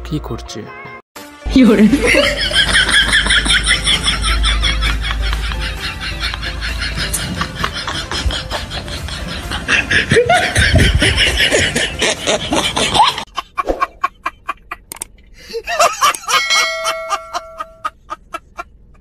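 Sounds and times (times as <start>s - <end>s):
man laughing hard: 2.0s - 14.8s, 15.4s - 18.7s
steady ringing tone: 16.2s - 18.0s.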